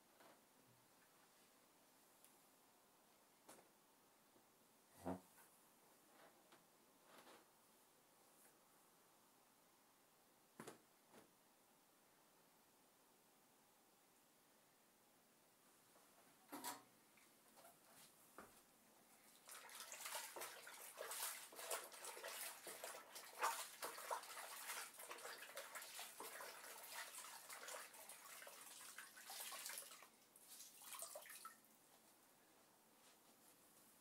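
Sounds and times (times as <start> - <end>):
wet cloth splashing in water: 19.3 - 31.6.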